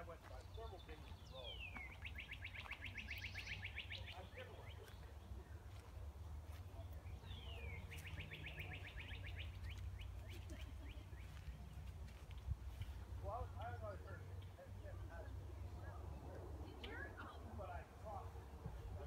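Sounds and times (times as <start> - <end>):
songbird singing trills: 0.0 - 5.6, 6.7 - 15.9.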